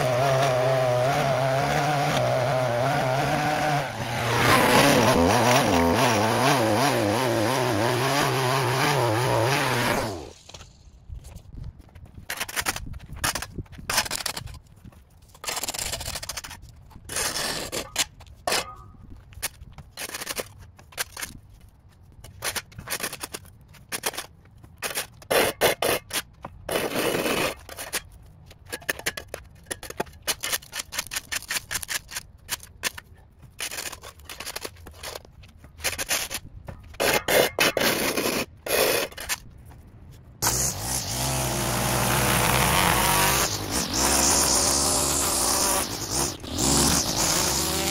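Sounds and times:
small gas engine running: 0.0s - 10.4s, 40.4s - 47.9s
tool scraping soil on pavement: 0.0s - 47.9s.

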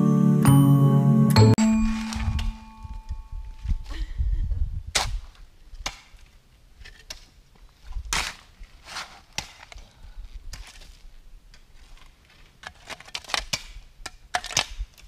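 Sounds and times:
garden rake working ground: 1.6s - 3.0s, 7.8s - 13.3s
shovel scraping gravelly dirt: 1.7s - 3.0s, 6.8s - 13.8s.

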